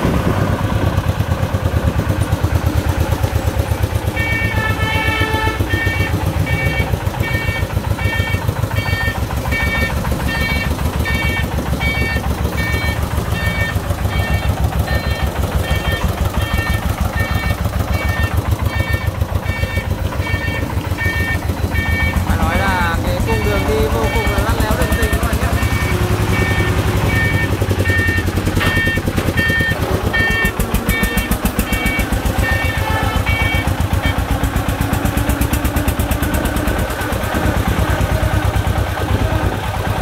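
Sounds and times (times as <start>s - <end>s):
diesel engine thumping: 0.0s - 40.0s
reversing alarm beeps: 5.7s - 34.4s.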